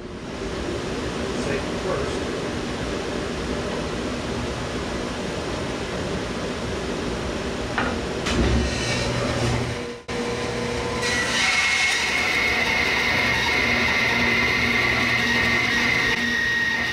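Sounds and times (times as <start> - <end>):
dust collector running: 8.1 - 16.9.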